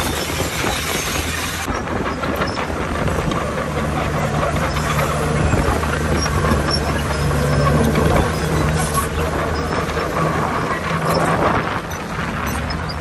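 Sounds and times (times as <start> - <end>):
bulldozer diesel engine running: 0.0 - 13.0
steel tracks clattering: 0.0 - 13.0.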